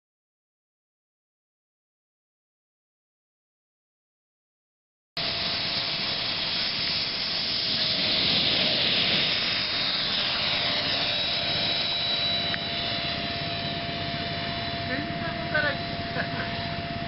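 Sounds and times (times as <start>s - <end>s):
electric ducted fan whine: 5.2s - 17.0s.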